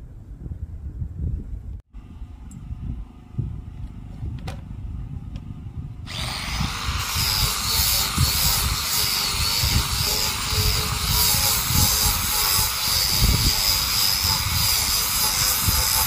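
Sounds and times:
wind rumbling on microphone: 0.0 - 16.0
electric sander sanding wood: 6.1 - 16.0.

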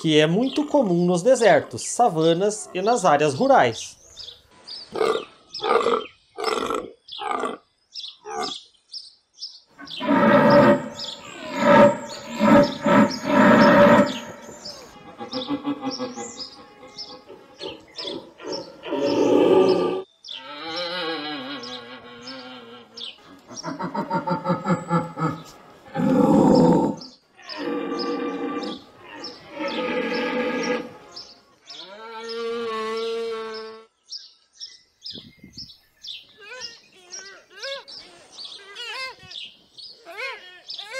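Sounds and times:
faint birds chirping: 0.0 - 40.9
high bird chirps: 9.8 - 16.5
antelope calling: 9.8 - 33.7.

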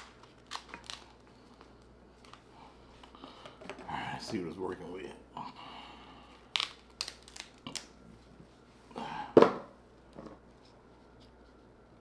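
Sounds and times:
crab shell cracking: 0.0 - 1.2, 6.4 - 8.0.

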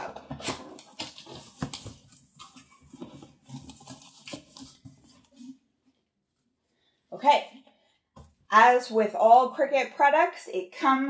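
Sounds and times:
cardboard flaps scraping: 0.3 - 5.6.

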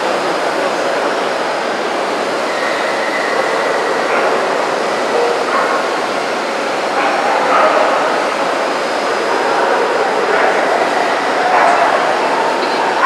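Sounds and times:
crowded hall din: 0.0 - 13.0
dogs barking: 3.2 - 13.0.

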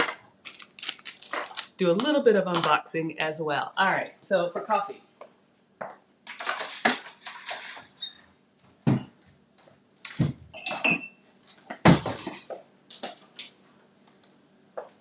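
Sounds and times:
dishes and cutlery clattering: 10.6 - 11.2, 11.9 - 12.6.

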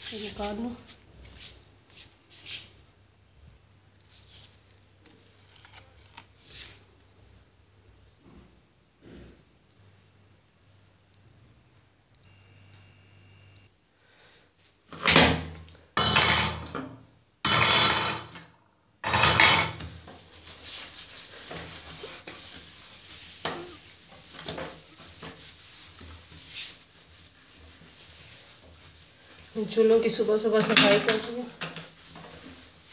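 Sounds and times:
cloth wiping glass: 0.0 - 2.8, 20.1 - 32.9.

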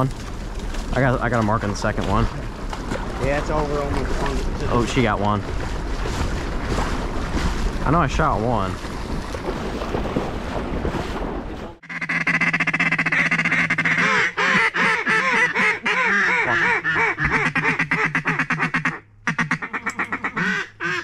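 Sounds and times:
duck call quacks: 11.8 - 21.0.

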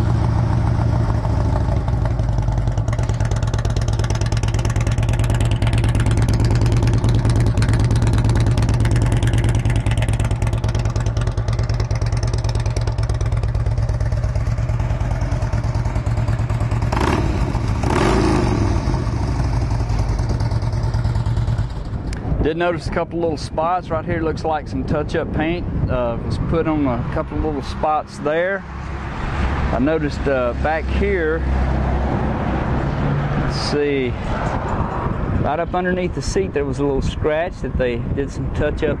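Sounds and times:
motorcycle engine idling: 0.0 - 22.2.

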